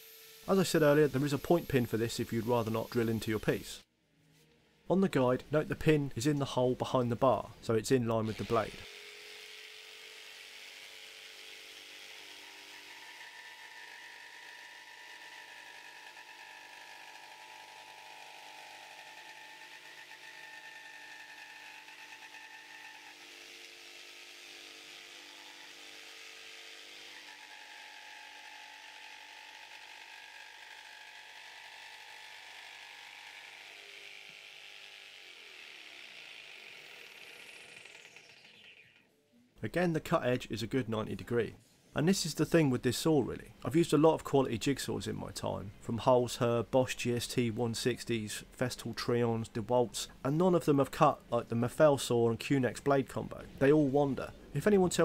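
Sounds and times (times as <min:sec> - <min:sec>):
jigsaw cutting board: 0:00.0 - 0:03.8, 0:08.2 - 0:39.1.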